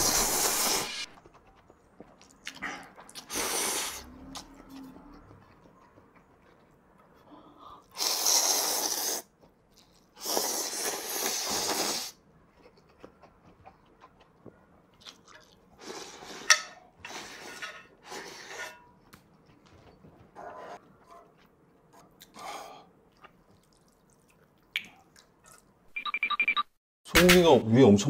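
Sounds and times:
person slurping noodles: 0.0s - 1.2s, 7.8s - 9.3s, 10.2s - 12.2s.

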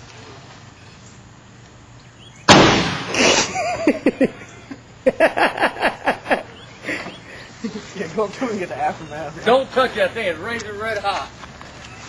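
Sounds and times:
airbag going off with loud bang: 2.5s - 3.6s.

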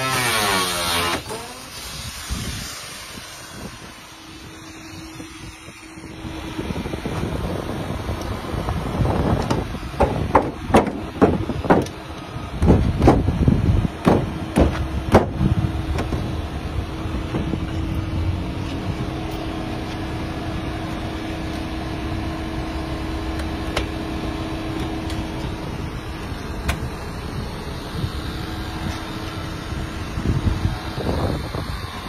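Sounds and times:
vehicle engine humming: 0.0s - 32.0s
sharp knocks: 9.4s - 12.0s, 14.0s - 15.4s.

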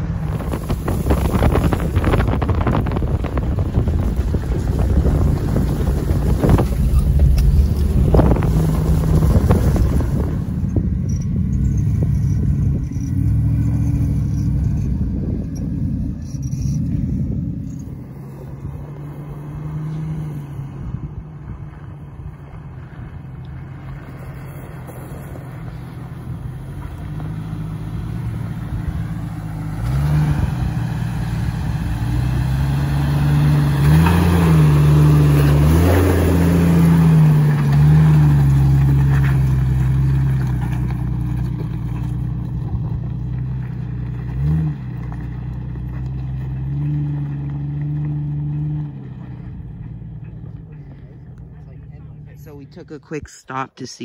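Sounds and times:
engine revving up and down: 0.0s - 21.2s, 27.0s - 40.5s
off-road vehicle engines running: 0.0s - 54.0s.

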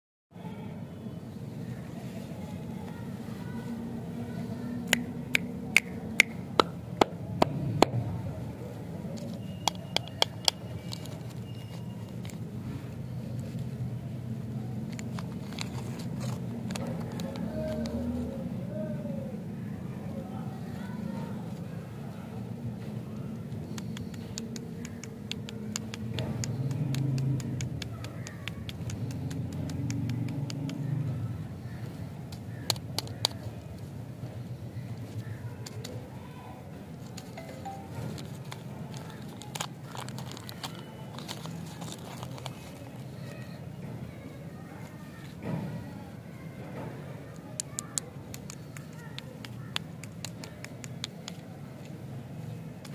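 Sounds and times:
plastic wrapper crinkling: 37.0s - 43.4s.

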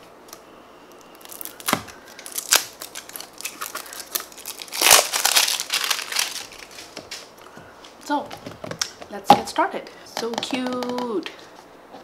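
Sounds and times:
plastic wrap crinkling: 0.9s - 7.4s.

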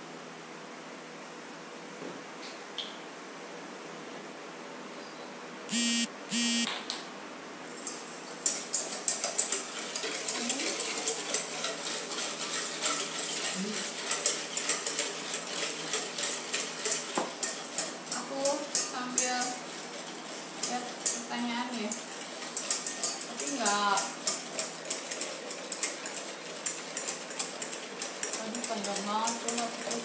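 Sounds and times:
short electronic beeps: 5.7s - 6.7s
whisk beating in metal bowl: 8.4s - 30.0s.

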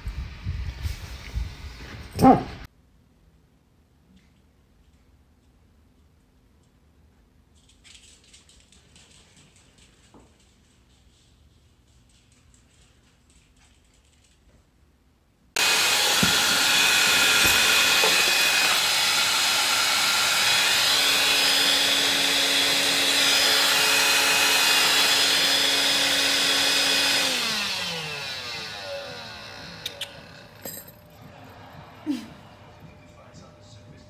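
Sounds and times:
appliance electric motor whining: 15.6s - 31.5s.

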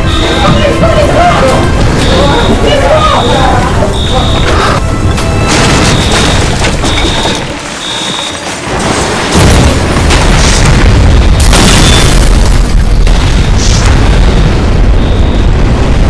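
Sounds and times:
bright explosion blast: 9.2s - 16.0s
explosion boom with deep rumble: 9.2s - 16.0s.

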